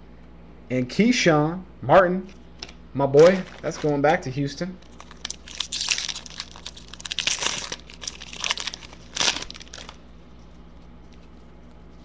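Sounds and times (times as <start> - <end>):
wrapper tearing and crinkling: 3.2 - 4.2, 4.8 - 10.0.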